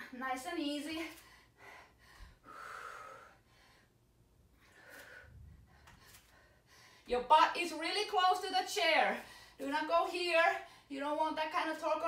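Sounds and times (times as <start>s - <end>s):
woman breathing effortfully: 1.2s - 7.1s, 9.2s - 9.6s.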